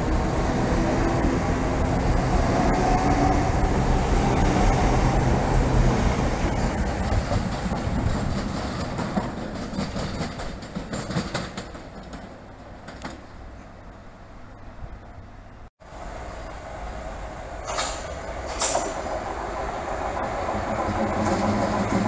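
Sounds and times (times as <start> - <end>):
electric train passing: 0.0 - 10.6, 15.8 - 22.0
wheels clicking over rail joints: 6.5 - 14.0, 17.6 - 22.0.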